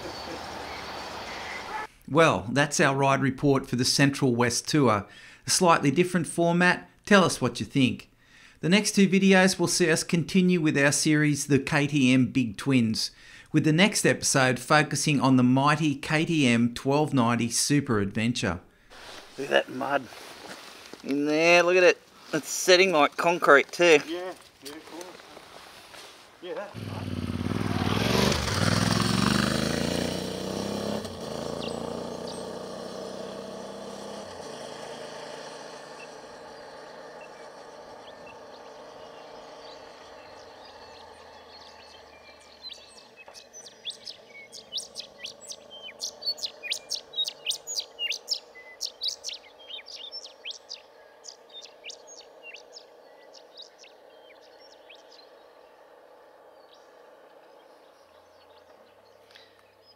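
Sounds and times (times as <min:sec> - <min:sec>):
bird chirping: 0:00.0 - 0:02.0, 0:30.4 - 0:59.9
motorcycle pulling away shifting gears: 0:26.7 - 0:59.9.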